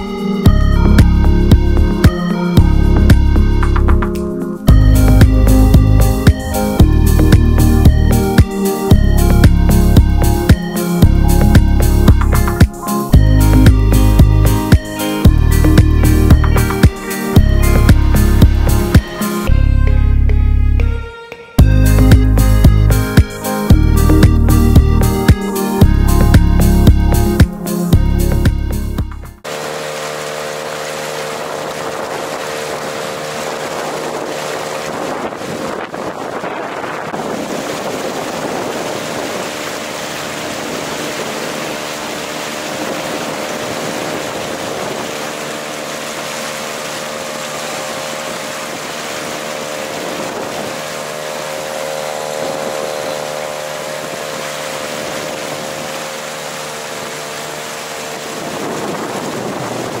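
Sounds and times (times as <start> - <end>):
outboard motor running: 0.0 - 60.0
water rushing past hull: 0.5 - 19.6, 29.4 - 60.0
wind on microphone: 29.4 - 60.0.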